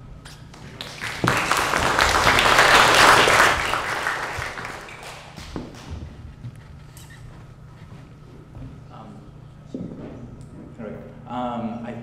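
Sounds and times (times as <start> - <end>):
audience applauding: 0.6 - 5.9.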